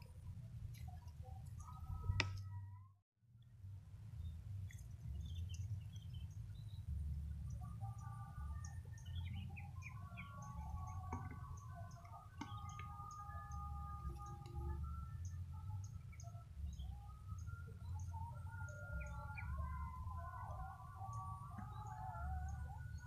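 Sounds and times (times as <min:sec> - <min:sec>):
steady low rumble: 0:03.4 - 0:23.0
birds chirping and whistling: 0:05.0 - 0:23.0.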